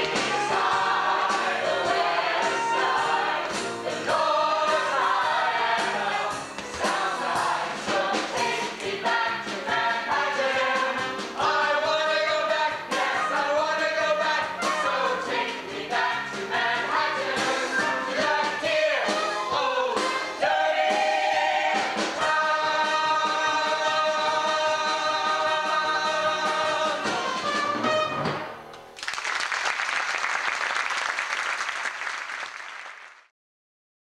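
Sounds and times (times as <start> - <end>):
ensemble singing with orchestra: 0.0 - 28.2
audience applause: 29.0 - 33.3.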